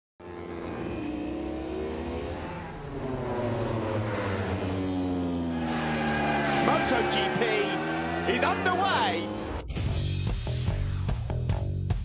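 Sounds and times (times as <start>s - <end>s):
racing motorcycle engine revving: 0.2s - 9.8s.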